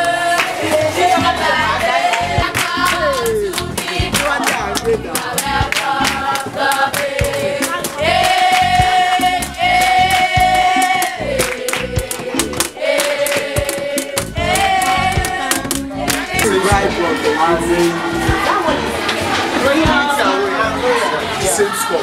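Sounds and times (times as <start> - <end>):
music with singing voices: 0.0 - 22.0.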